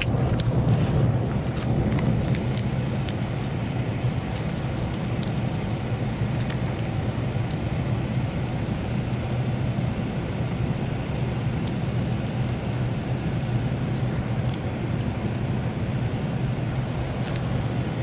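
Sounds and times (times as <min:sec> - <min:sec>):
machinery drone: 0:00.0 - 0:18.0
masking tape peeling crackles: 0:01.5 - 0:07.7.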